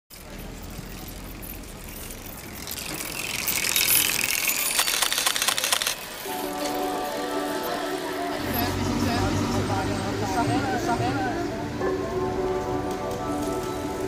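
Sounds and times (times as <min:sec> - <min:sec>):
freewheel ratchet clicking: 0:00.2 - 0:06.3
music: 0:06.2 - 0:14.0.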